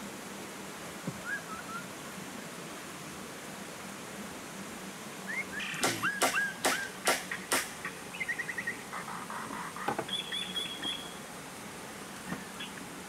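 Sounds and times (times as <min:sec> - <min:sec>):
birds chirping: 0:05.3 - 0:12.9
hammer blows on wood: 0:05.8 - 0:07.8.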